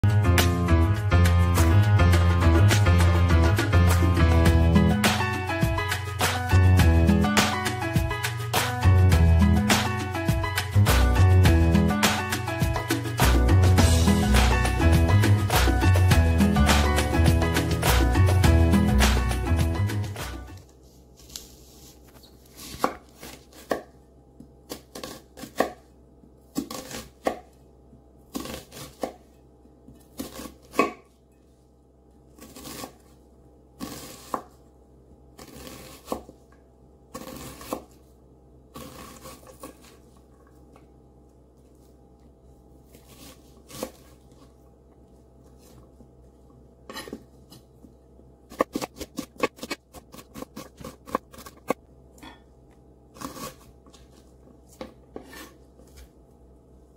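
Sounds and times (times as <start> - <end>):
knife cutting onion on board: 22.6 - 24.0, 24.6 - 25.9, 26.5 - 27.6, 28.3 - 29.3, 29.9 - 31.1, 32.4 - 33.1, 33.8 - 34.5, 35.4 - 36.4, 37.1 - 38.0, 38.7 - 40.0, 42.9 - 44.2, 46.9 - 47.7, 48.5 - 52.4, 53.2 - 54.0, 54.7 - 56.0
rapid chopping: 48.5 - 51.8.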